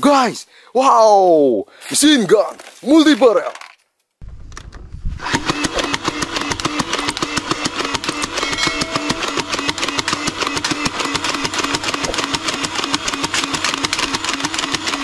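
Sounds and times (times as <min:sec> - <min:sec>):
toy dart blaster motor: 0:05.2 - 0:08.5, 0:09.5 - 0:15.0
rapid clicks of dart feeding: 0:10.1 - 0:15.0.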